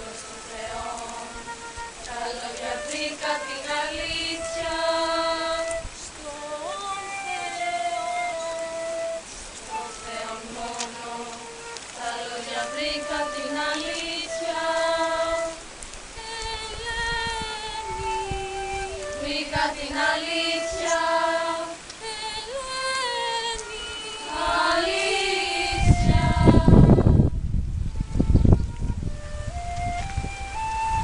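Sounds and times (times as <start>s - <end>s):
voices singing slow melody: 0.0s - 27.3s.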